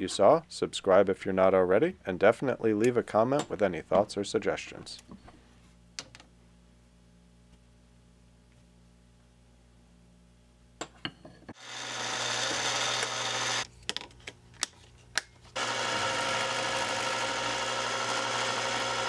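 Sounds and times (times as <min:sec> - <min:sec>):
lathe cutting hiss: 0:11.6 - 0:13.6
lathe motor humming: 0:11.6 - 0:13.6, 0:15.6 - 0:19.0.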